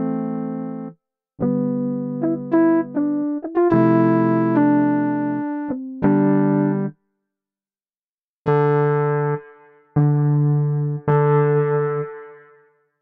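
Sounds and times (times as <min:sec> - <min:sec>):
electric piano chords: 0:00.0 - 0:06.9, 0:08.5 - 0:12.6.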